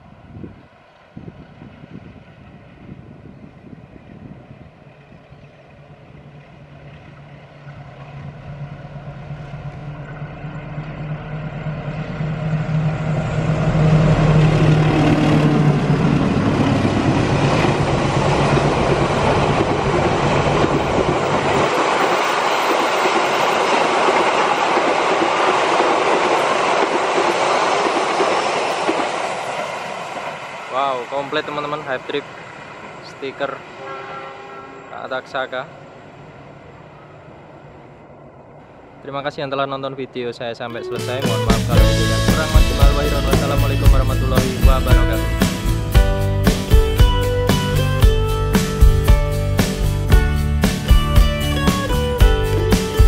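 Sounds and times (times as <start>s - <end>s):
locomotive engine drone: 0.0s - 39.0s, 40.6s - 53.0s
train wheels clattering on rails: 11.8s - 30.4s.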